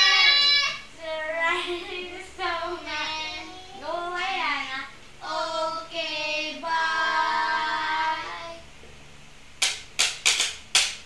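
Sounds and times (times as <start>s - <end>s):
child singing: 0.0s - 8.7s
hand claps: 9.6s - 11.0s.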